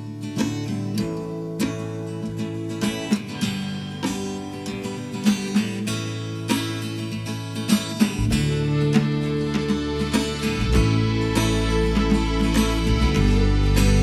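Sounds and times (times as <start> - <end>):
acoustic guitar strumming chords: 0.0 - 14.0
bass part: 8.2 - 14.0.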